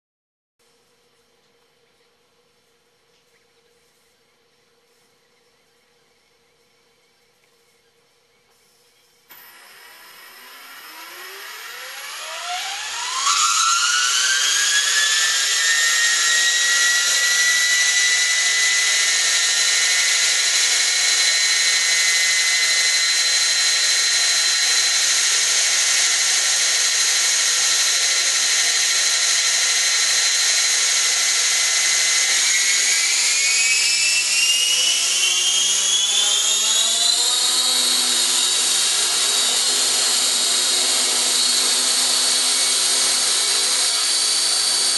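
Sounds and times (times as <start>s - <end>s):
electric helicopter motor whine: 9.3s - 44.9s.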